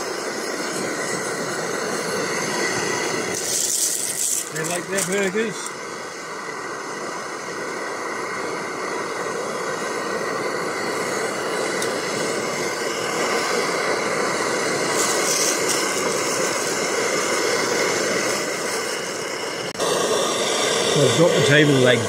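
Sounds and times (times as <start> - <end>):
burger patties sizzling in a pan: 3.4 - 5.6.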